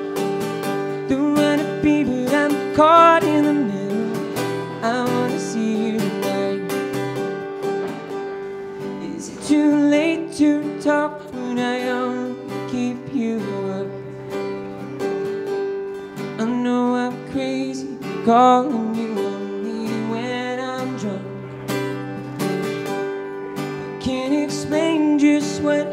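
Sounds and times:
acoustic guitar strumming: 0.0s - 25.9s
man singing: 0.7s - 7.5s, 8.8s - 14.5s, 16.2s - 21.8s, 23.8s - 25.9s.

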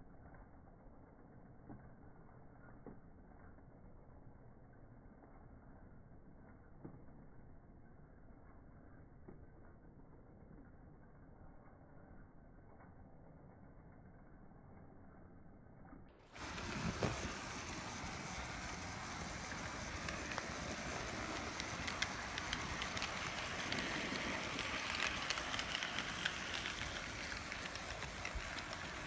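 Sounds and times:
wheels clicking on rails: 16.2s - 29.0s
model train motor whirring: 16.4s - 29.0s.

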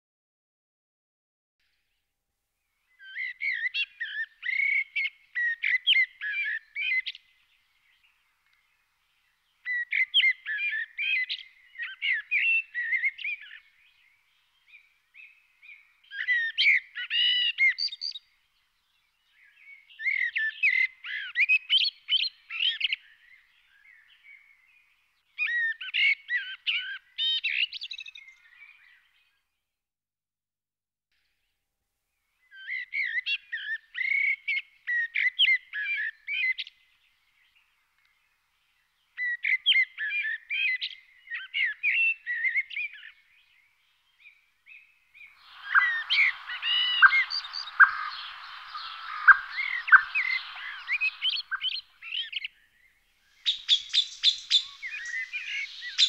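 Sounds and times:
songbird warbling: 44.7s - 52.6s, 53.2s - 56.0s.

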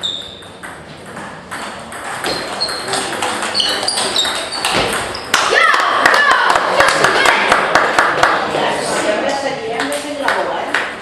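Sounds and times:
table tennis ball hits: 0.0s - 6.2s.

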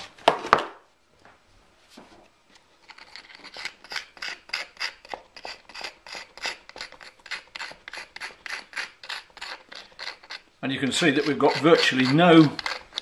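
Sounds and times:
hand tool scraping sand: 2.9s - 13.0s.

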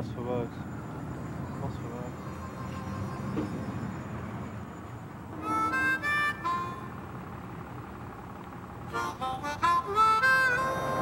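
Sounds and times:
slow solo melody: 8.9s - 11.0s.

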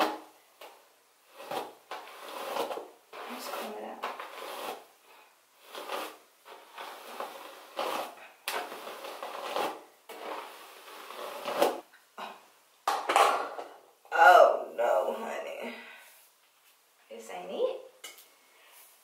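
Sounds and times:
brush strokes through hair: 3.2s - 4.9s.

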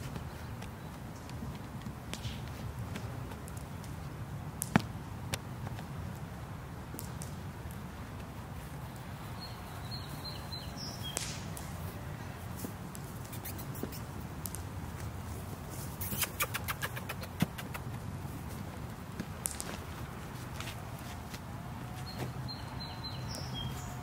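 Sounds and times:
sharp clicks: 16.0s - 18.1s.

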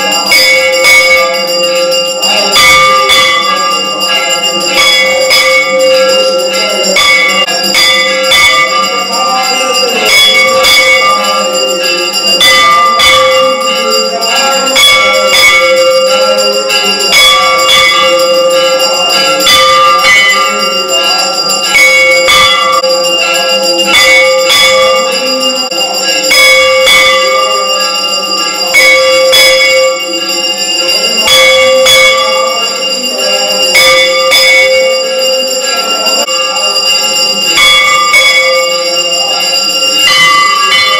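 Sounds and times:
metal bells ringing: 0.0s - 40.9s.

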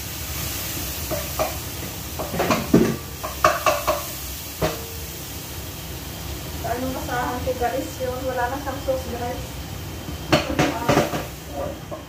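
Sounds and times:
food sizzling: 0.0s - 12.0s.

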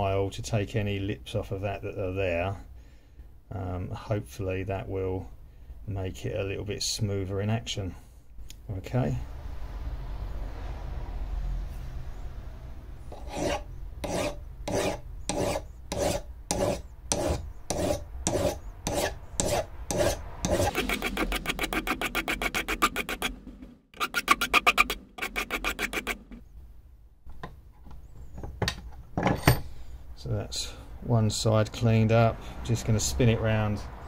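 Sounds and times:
hand file rasping on metal: 13.1s - 23.4s, 24.0s - 26.4s.

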